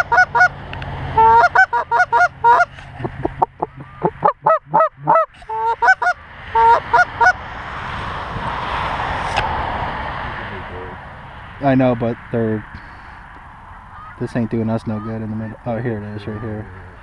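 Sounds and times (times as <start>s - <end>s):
goose calls honking: 0.0s - 0.6s, 1.2s - 2.8s, 3.5s - 7.4s, 13.9s - 17.0s
steady rushing noise: 5.0s - 16.2s.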